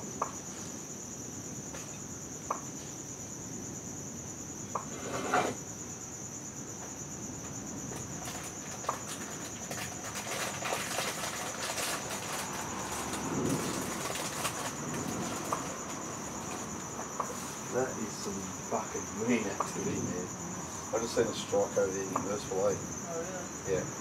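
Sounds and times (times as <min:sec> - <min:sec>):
night insects trilling: 0:00.0 - 0:24.0.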